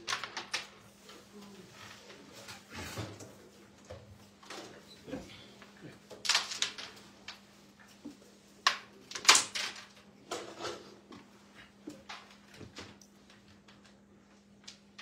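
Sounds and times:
coins clattering on wooden frame: 6.2 - 7.2, 8.7 - 10.8
carrom striker cracking into coins: 8.7 - 9.9.

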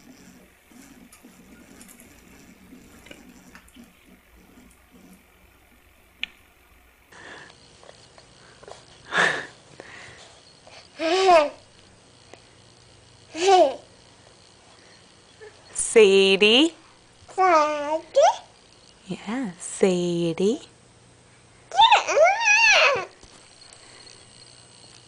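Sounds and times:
toddler excited outbursts: 21.7 - 23.1.

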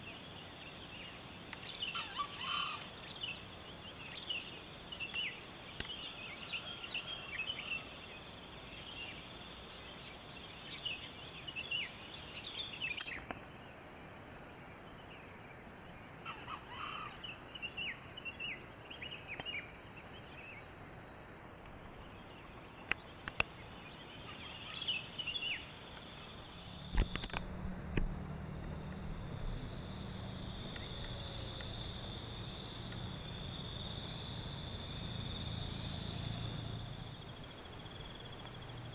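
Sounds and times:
birds chirping: 0.0 - 33.9
insects droning: 0.0 - 38.9
low hum: 26.2 - 38.9
sharp clicks: 26.9 - 28.1.

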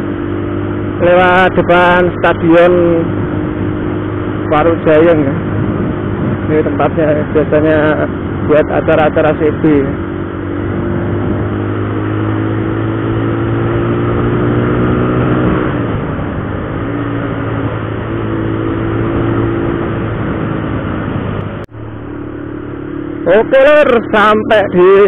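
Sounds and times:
motorcycle engine running: 0.0 - 25.0
wind rushing over microphone: 0.0 - 25.0.

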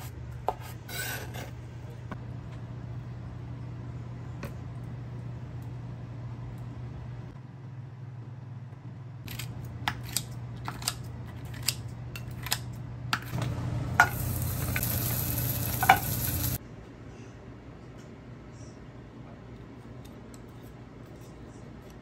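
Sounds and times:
dumplings sizzling in frying pan: 13.6 - 16.6.

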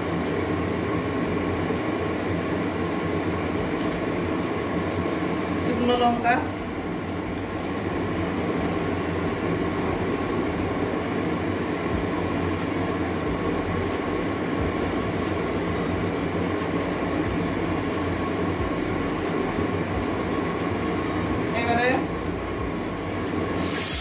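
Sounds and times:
low hum: 0.0 - 23.6
spices sizzling in hot oil: 7.4 - 12.4, 23.6 - 24.0.

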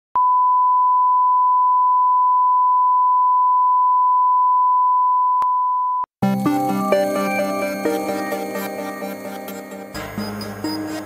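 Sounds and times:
music: 6.2 - 11.0.

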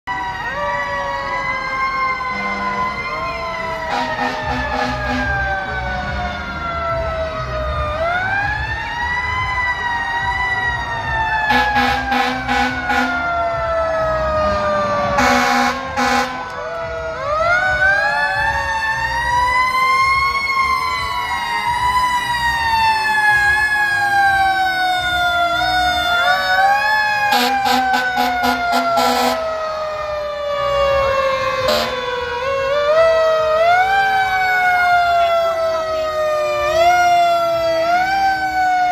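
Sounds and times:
fire engine sirens wailing: 0.0 - 38.9
truck engines rumbling: 0.0 - 38.9
air horn blasts: 2.3 - 3.0, 3.9 - 5.8, 11.5 - 13.2, 14.4 - 16.5, 27.3 - 29.4, 31.6 - 32.0.

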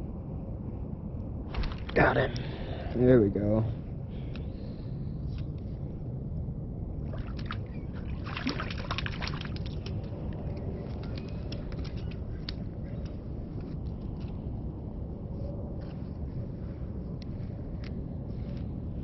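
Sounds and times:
steady low rumble: 0.0 - 19.0
fish splashing in slushy water: 7.1 - 10.0
water dripping: 7.1 - 11.2.

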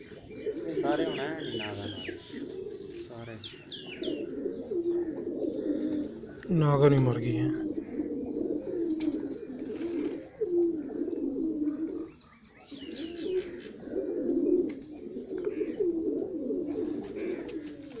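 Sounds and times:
pigeons cooing: 0.0 - 18.0.

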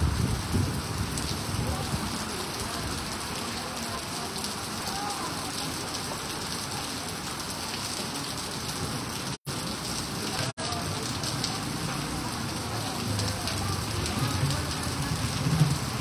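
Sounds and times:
heavy rain on wet pavement: 0.0 - 16.0.

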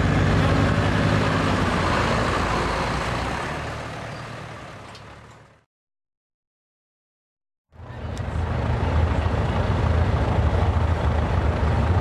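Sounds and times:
diesel pickup engine idling: 7.8 - 12.0.

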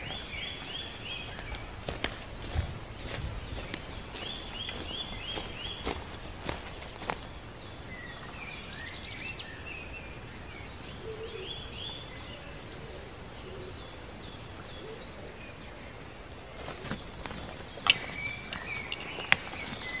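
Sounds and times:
footsteps on dry leaves: 0.0 - 7.5, 16.6 - 20.0
songbirds chirping: 0.0 - 20.0
steady background hiss: 0.0 - 20.0.

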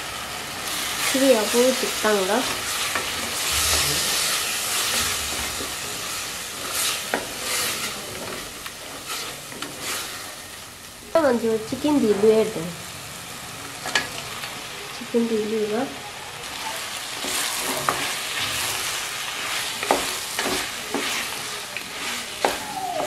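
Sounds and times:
curry sizzling in a pot: 0.0 - 23.0
wooden spatula scraping: 0.8 - 10.3, 17.1 - 23.0.

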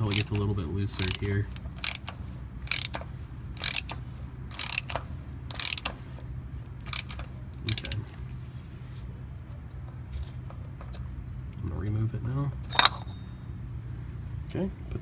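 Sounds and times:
ratchet clicking: 0.0 - 6.0, 6.8 - 8.0.

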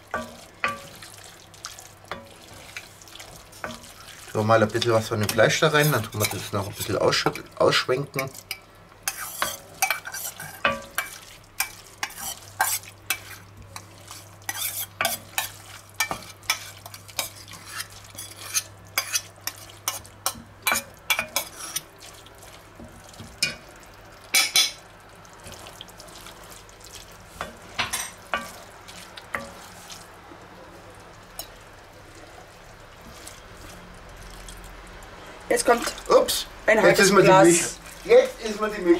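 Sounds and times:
wooden spoon scraping a pan: 0.0 - 7.4, 8.2 - 23.6, 25.4 - 30.2
meat sizzling in a pan: 0.0 - 38.9
fork scraping a metal bowl: 9.1 - 11.2, 12.0 - 13.4, 14.5 - 20.0, 20.7 - 21.9.

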